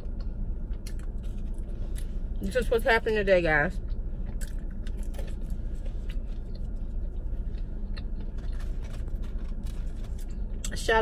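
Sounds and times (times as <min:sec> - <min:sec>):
car air conditioning blowing: 0:00.0 - 0:11.0
eating crunches: 0:03.9 - 0:10.7.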